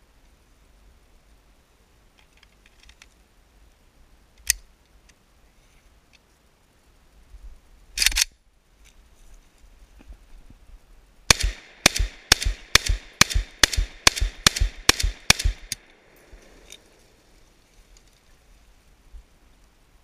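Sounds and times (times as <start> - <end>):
faint rifle handling clicks: 2.1 - 3.2, 4.3 - 5.2, 8.0 - 9.0, 11.3 - 17.1
magazine locking click: 8.0 - 8.3, 11.3 - 16.8.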